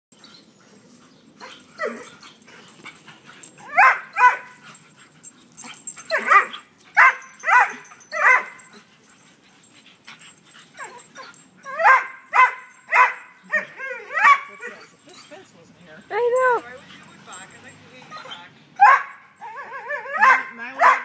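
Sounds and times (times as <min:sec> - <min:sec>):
dog yipping: 0:03.6 - 0:04.6, 0:06.0 - 0:08.8, 0:10.8 - 0:15.4, 0:18.1 - 0:21.0.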